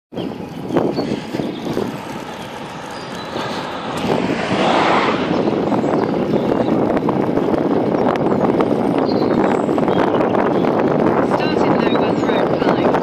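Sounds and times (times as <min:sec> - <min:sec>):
bicycle road noise: 0:00.1 - 0:13.0
wind rushing over microphone: 0:00.1 - 0:13.0.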